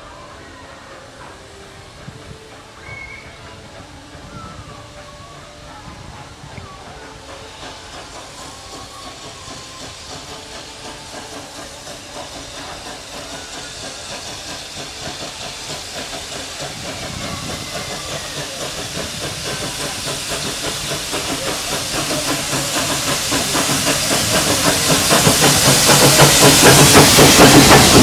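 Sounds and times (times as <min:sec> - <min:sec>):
steam hissing: 0:00.0 - 0:28.0
steam locomotive exhaust beat: 0:00.0 - 0:28.0.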